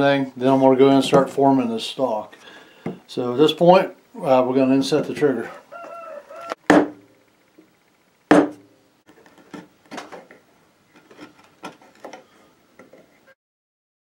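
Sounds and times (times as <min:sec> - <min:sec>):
wood knocking on workbench: 0:06.7 - 0:07.0, 0:08.3 - 0:08.6.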